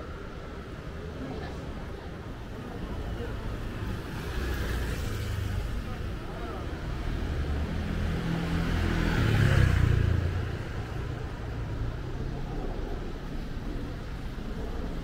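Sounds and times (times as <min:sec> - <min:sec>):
road noise: 0:00.0 - 0:15.0
vehicle engine rumble: 0:00.0 - 0:15.0.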